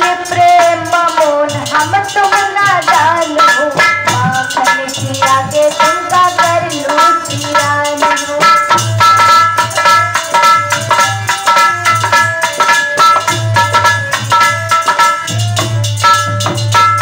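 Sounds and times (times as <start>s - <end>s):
young woman singing: 0.0s - 9.4s
percussion beat: 0.0s - 17.0s.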